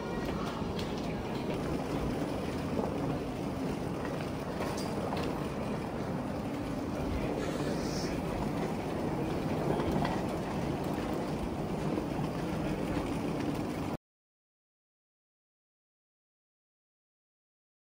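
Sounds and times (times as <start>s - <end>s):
moving walkways rumbling: 0.0s - 14.0s.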